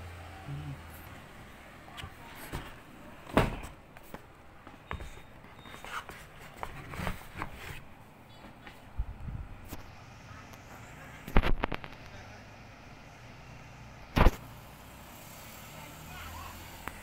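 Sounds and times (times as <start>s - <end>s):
laptop handling knocks and scrapes: 4.9s - 7.9s.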